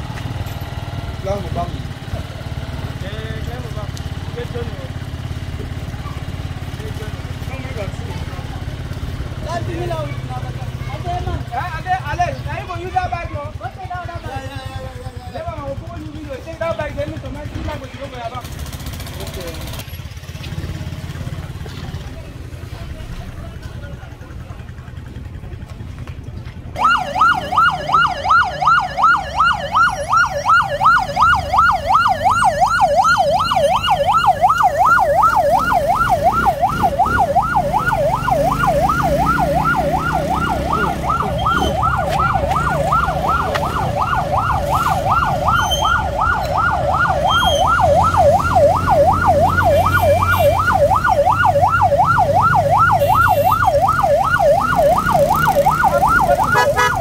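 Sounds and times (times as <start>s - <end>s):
motorcycle engine running: 0.0s - 57.0s
yelp siren warbling: 26.8s - 57.0s.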